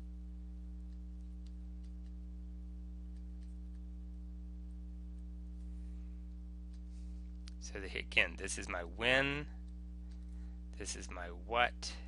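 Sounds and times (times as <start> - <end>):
low electrical hum: 0.0 - 12.0
faint ticks: 0.8 - 2.2.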